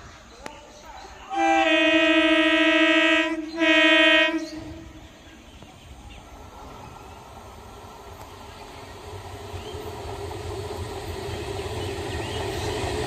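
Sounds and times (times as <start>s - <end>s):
low rumble of train: 0.0s - 13.0s
train horn blasts: 1.3s - 5.0s.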